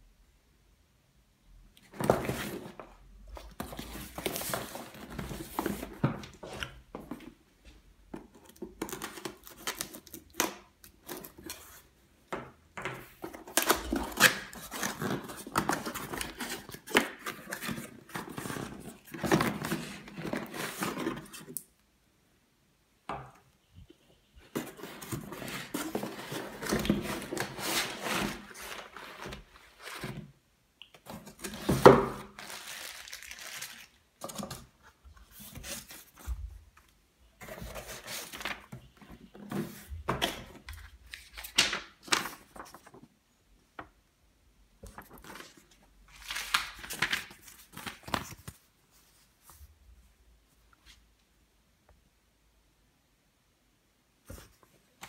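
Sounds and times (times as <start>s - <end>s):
plastic wrapping rustling: 31.1s - 34.4s.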